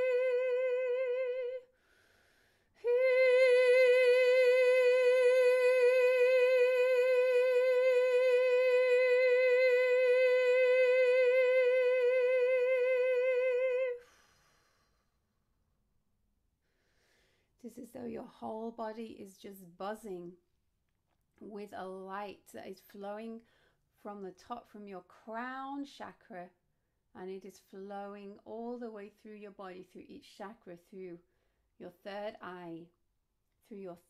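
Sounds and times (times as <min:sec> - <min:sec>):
woman singing long held note: 0:00.0 - 0:01.7, 0:02.8 - 0:14.2
quick breath: 0:16.6 - 0:17.6.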